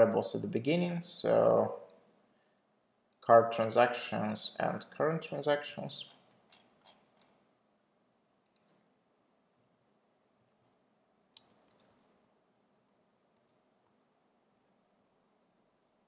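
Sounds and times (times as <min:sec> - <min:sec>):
computer keyboard keys clicking: 0:08.5 - 0:08.8, 0:11.4 - 0:12.1, 0:13.3 - 0:14.0.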